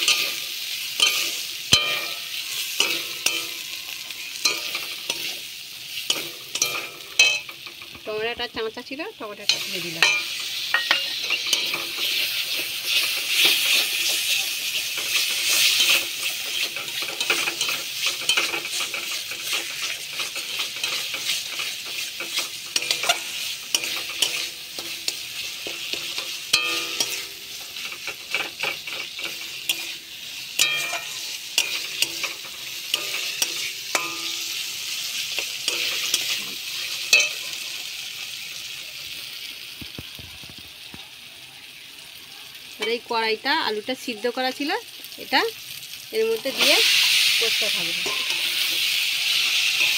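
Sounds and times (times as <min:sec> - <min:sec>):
metal spatula scraping pan: 0:00.0 - 0:08.0, 0:09.4 - 0:37.6, 0:46.5 - 0:49.9
paste sizzling in a pan: 0:00.0 - 0:49.9.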